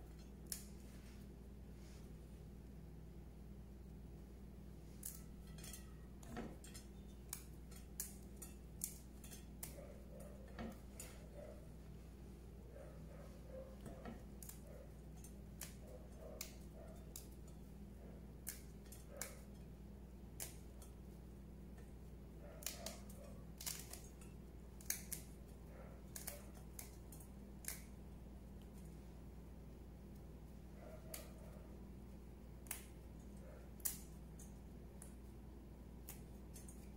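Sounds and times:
low steady hum: 0.0s - 36.9s
buds snapping off stalks: 24.8s - 25.4s, 26.1s - 28.0s.

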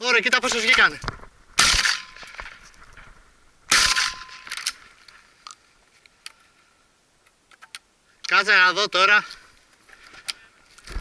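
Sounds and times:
shotgun shots with echo: 1.6s - 2.4s, 3.7s - 4.5s.

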